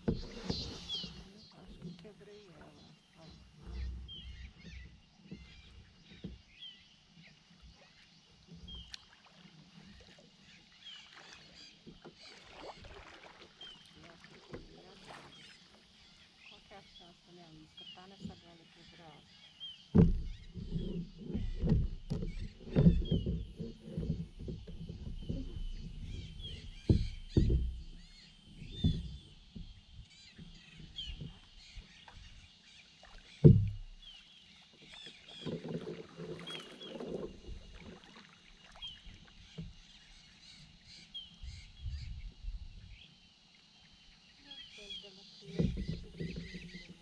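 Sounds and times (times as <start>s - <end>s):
paddle knocking plastic hull: 0.0s - 6.6s, 11.1s - 16.0s, 19.8s - 42.8s, 44.8s - 47.0s
paddle splashing in water: 0.0s - 42.9s, 44.4s - 47.0s.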